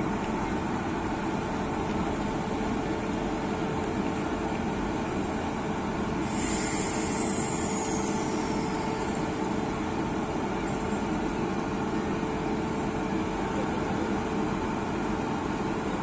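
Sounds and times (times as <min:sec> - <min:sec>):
high squeal: 0:06.3 - 0:10.9.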